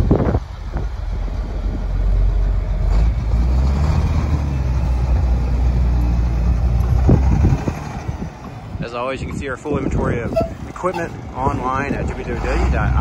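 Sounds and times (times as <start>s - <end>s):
diesel truck engine driving past: 0.0s - 13.0s.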